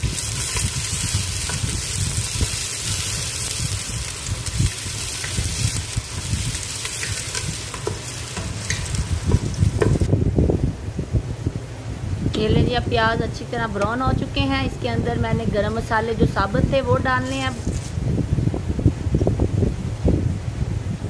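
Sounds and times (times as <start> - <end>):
onions sizzling in hot oil: 0.0 - 10.1.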